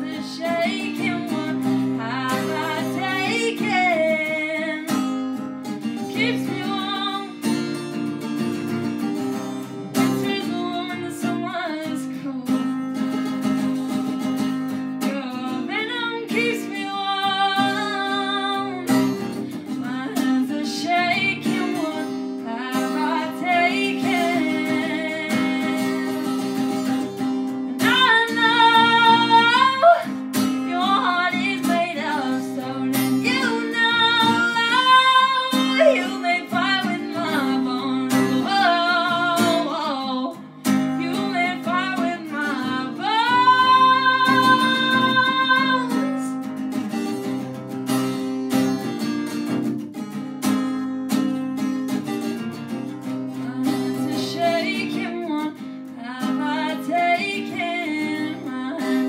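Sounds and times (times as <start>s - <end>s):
person singing: 0.0s - 5.0s, 6.0s - 7.5s, 15.0s - 46.4s, 53.3s - 59.0s
strummed acoustic guitar: 0.0s - 59.0s.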